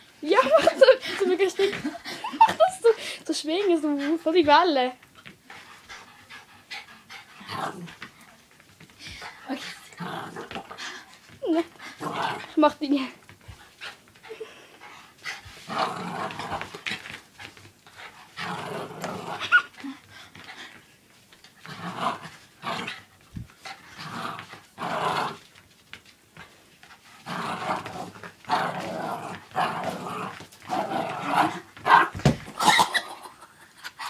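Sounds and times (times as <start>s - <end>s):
small dog growling: 9.6s - 10.8s, 27.2s - 33.2s.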